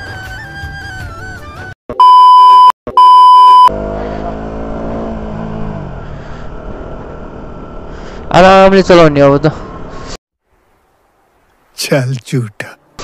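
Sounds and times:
background music: 0:00.0 - 0:01.8
electronic bleeps: 0:02.0 - 0:03.7
road noise: 0:03.2 - 0:13.0
motorcycle engine: 0:03.6 - 0:10.1.

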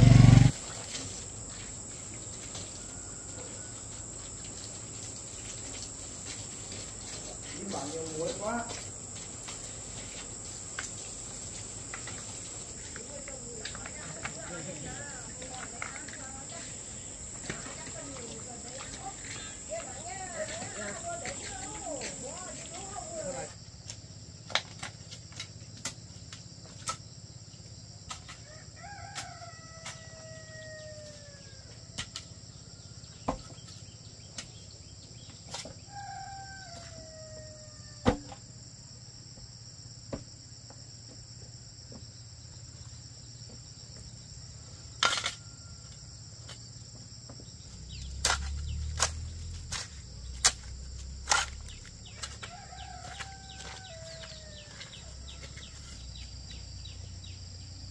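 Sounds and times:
high insect drone: 0:00.0 - 0:57.9
rooster crowing: 0:02.6 - 0:04.1, 0:28.5 - 0:32.0, 0:35.8 - 0:38.0, 0:52.0 - 0:56.1.

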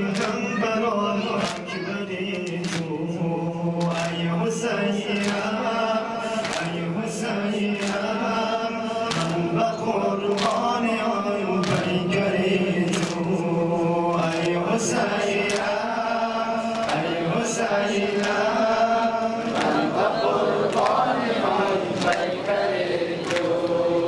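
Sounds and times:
men chanting in unison: 0:00.0 - 0:24.0
hands slapping chests: 0:01.4 - 0:02.9, 0:03.8 - 0:04.2, 0:05.2 - 0:05.6, 0:06.4 - 0:06.8, 0:07.8 - 0:08.2, 0:09.1 - 0:09.5, 0:10.3 - 0:10.7, 0:11.6 - 0:12.0, 0:12.8 - 0:13.3, 0:14.1 - 0:14.6, 0:15.4 - 0:15.8, 0:16.7 - 0:17.2, 0:18.1 - 0:18.6, 0:19.4 - 0:22.4, 0:23.2 - 0:23.7.

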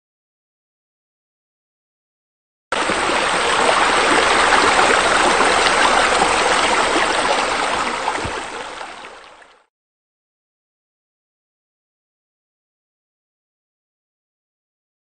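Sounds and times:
running water rushing: 0:02.7 - 0:09.7.

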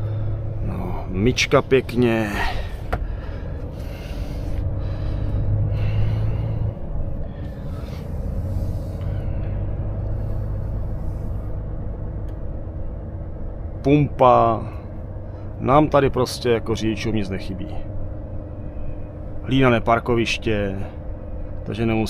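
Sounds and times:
diesel truck engine low hum: 0:00.0 - 0:22.0.

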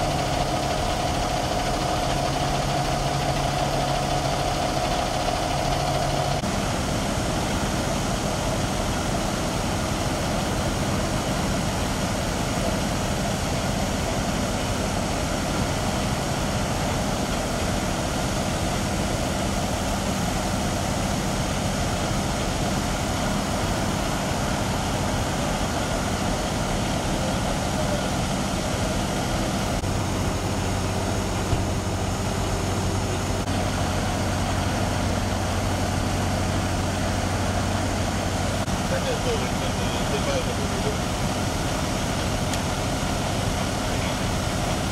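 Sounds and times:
fire engine idling: 0:00.0 - 0:44.9.

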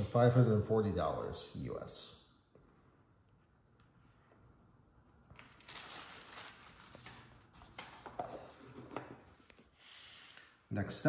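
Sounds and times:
packaging rustling: 0:05.4 - 0:08.5.

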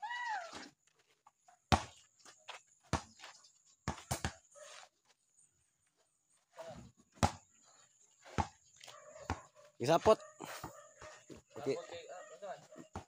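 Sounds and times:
basketball bouncing on dirt: 0:00.4 - 0:04.6, 0:06.6 - 0:13.0.

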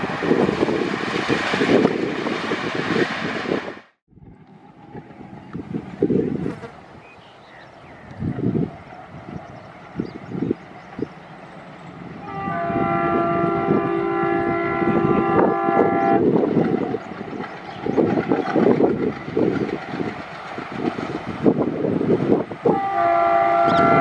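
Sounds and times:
diesel locomotive engine: 0:00.0 - 0:24.0
locomotive horn blast: 0:12.2 - 0:16.3, 0:22.7 - 0:24.0.

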